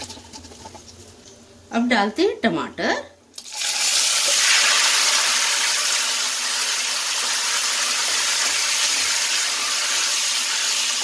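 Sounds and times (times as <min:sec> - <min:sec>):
tomatoes sizzling in hot oil: 0:03.3 - 0:11.0.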